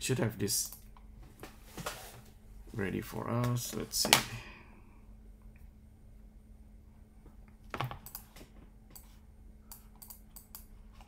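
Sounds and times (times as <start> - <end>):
mouse and keyboard clicks: 9.7 - 11.0.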